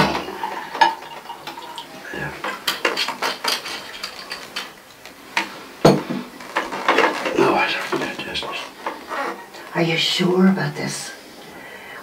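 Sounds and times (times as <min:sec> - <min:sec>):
glasses clinking: 0:00.4 - 0:04.8.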